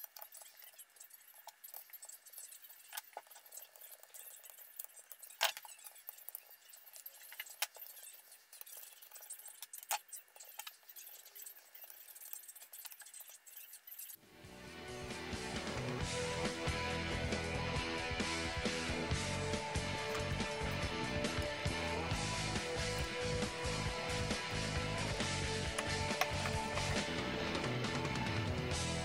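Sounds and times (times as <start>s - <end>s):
music: 14.2s - 29.0s.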